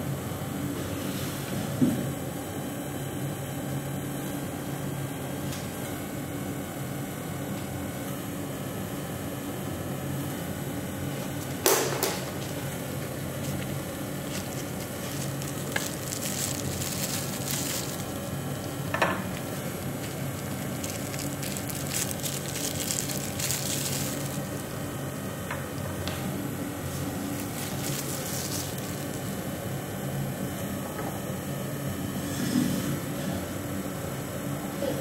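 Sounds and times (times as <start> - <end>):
machine hum: 0.0 - 35.0
laser crackling sizzle on metal: 12.6 - 25.4.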